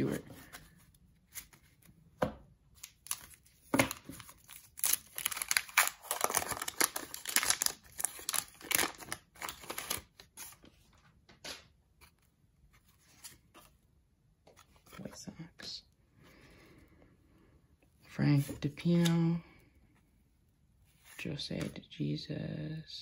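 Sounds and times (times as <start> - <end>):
wrapper tearing and crinkling: 2.8 - 10.4.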